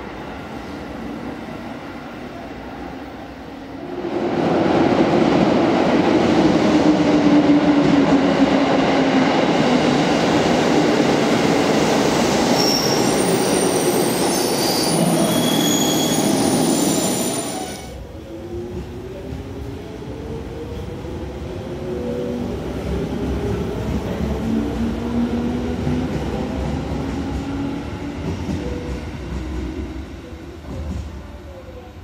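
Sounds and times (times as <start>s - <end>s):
electric train pulling in: 4.1s - 31.0s
wheel and brake squeals: 12.6s - 17.9s.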